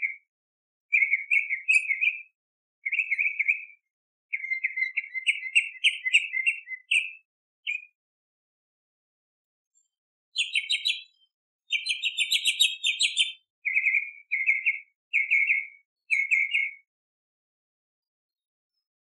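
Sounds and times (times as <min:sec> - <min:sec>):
mockingbird singing: 0:00.9 - 0:08.0, 0:10.4 - 0:16.8.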